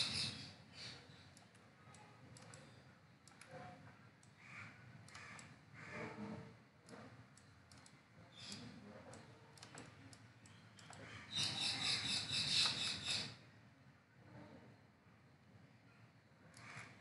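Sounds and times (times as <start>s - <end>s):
computer mouse clicking: 0.8s - 3.5s, 5.0s - 5.5s, 6.8s - 11.5s, 16.5s - 17.0s.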